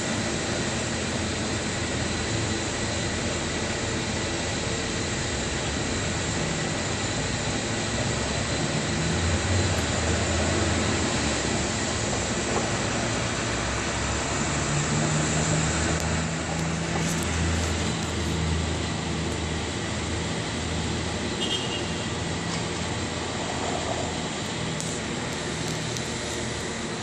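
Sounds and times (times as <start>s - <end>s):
vehicle humming: 0.6s - 27.0s
traffic hiss: 9.0s - 27.0s.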